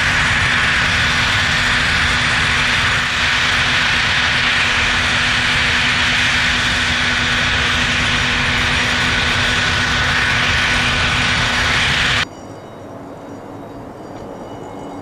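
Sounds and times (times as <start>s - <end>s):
jet engines running: 0.0s - 12.2s.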